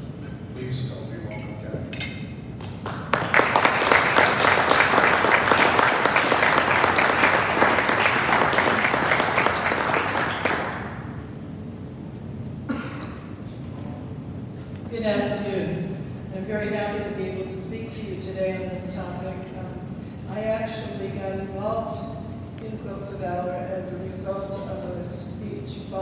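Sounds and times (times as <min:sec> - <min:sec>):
audience applauding: 0:02.6 - 0:11.2.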